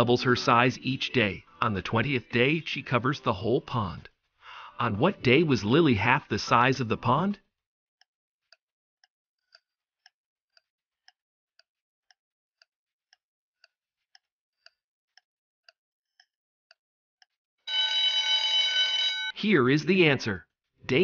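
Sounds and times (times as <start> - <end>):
faint clock ticks: 0.8 - 3.4, 8.0 - 17.4
loud steady alarm tone: 17.7 - 19.4.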